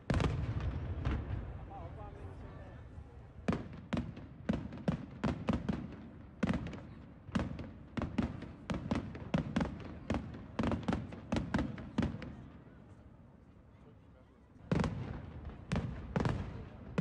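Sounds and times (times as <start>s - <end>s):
fireworks bursting: 0.0s - 1.8s.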